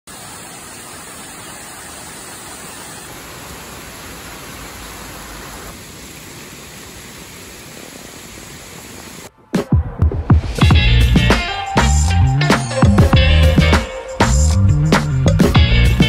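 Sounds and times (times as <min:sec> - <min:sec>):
heavy rain on foliage and pavement: 0:00.1 - 0:09.3.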